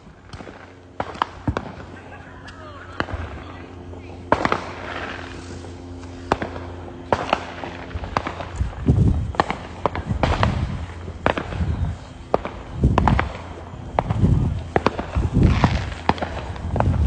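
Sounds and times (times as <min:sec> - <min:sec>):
fireworks cracking and banging: 0:00.0 - 0:17.0
low hum: 0:00.0 - 0:17.0
deep rumbling booms: 0:06.3 - 0:17.0.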